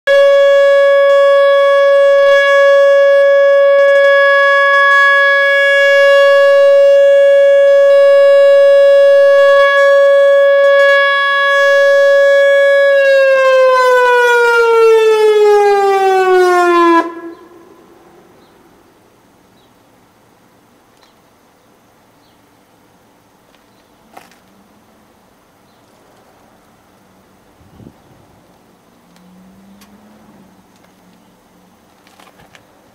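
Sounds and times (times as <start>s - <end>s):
electronic warning siren: 0.1s - 18.3s.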